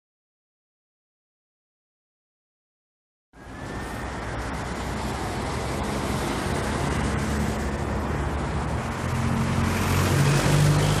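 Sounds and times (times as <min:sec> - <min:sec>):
road traffic noise: 0:03.4 - 0:11.0.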